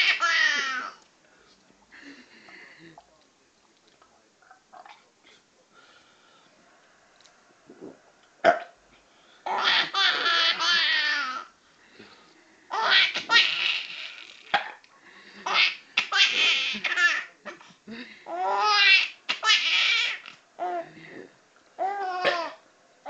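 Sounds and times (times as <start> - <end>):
baby laughing: 0.0 - 1.0, 9.5 - 11.5, 12.7 - 14.5, 15.4 - 17.6, 18.3 - 20.8.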